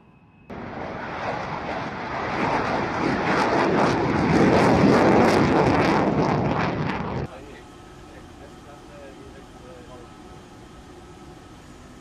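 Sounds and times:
fighter jet engine roaring: 0.0 - 12.0.

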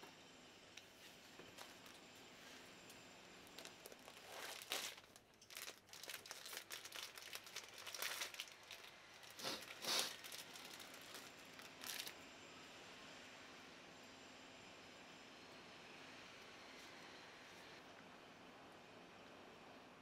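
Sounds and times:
paper wrapper crinkling and tearing: 3.5 - 12.2.

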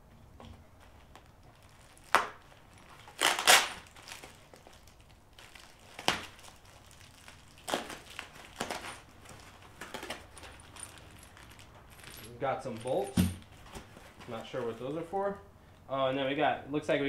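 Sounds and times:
packaging wrap crinkling and tearing: 1.1 - 11.7.

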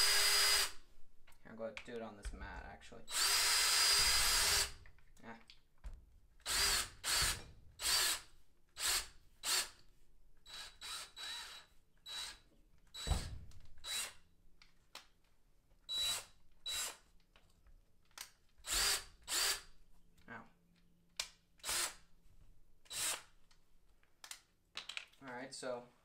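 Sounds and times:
power drill motor whining: 0.0 - 0.8, 3.1 - 4.8, 6.4 - 9.8, 10.4 - 13.2, 13.8 - 14.2, 15.9 - 17.0, 18.6 - 19.6, 21.6 - 22.0, 22.9 - 23.2.

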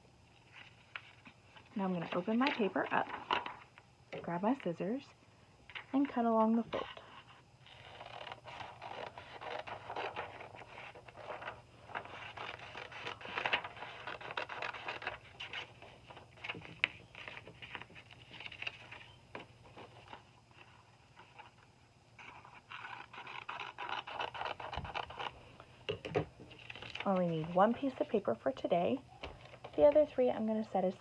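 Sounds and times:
scissors cutting paper: 6.0 - 15.8, 22.2 - 25.3.

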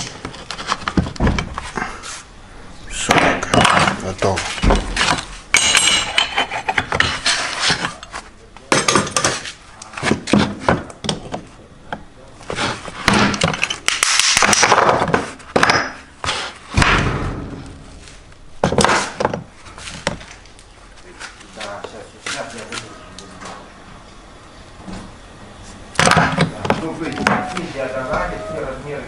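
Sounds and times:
metal scraping: 2.9 - 8.2.

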